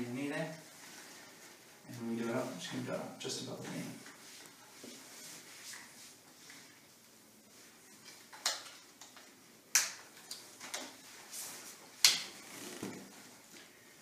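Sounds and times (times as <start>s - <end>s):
splint straps fastening: 12.2s - 13.1s.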